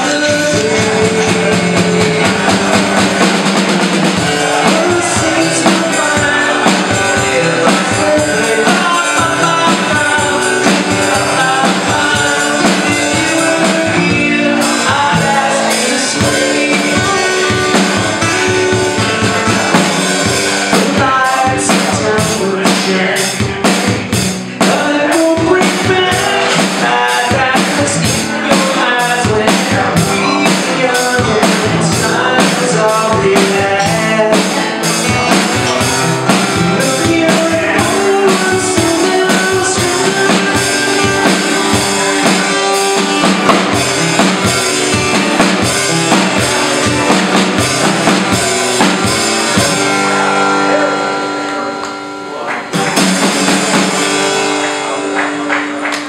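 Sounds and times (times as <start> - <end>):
drums playing a steady beat: 0.0 - 51.0, 52.6 - 56.0
acoustic guitar: 0.0 - 56.0.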